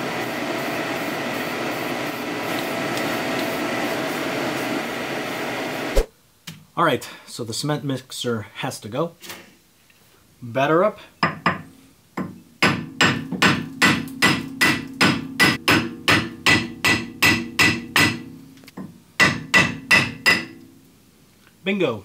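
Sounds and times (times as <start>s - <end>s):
hammer striking metal hub: 12.2s - 18.4s, 19.2s - 20.6s.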